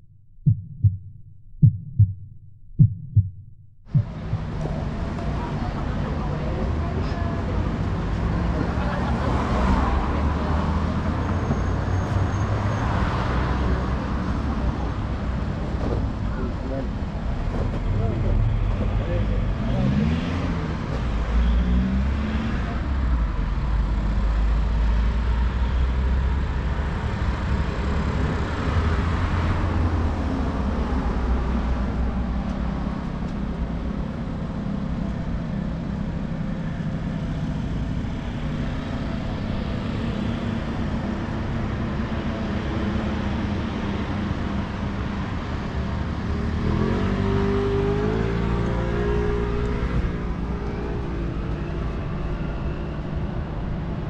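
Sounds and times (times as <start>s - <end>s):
engine revving: 19.2s - 23.0s, 46.0s - 52.3s.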